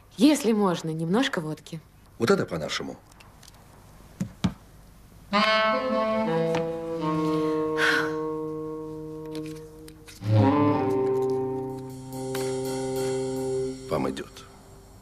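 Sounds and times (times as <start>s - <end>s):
slow background music: 5.3s - 15.0s.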